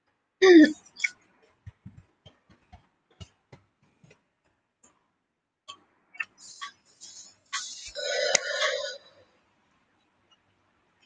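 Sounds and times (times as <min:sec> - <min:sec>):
light sharp clicks and taps: 0:01.4 - 0:05.0.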